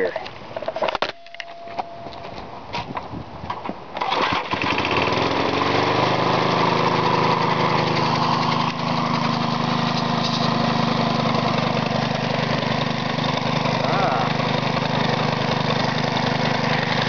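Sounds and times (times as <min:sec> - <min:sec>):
lawnmower engine running: 0:04.0 - 0:17.0.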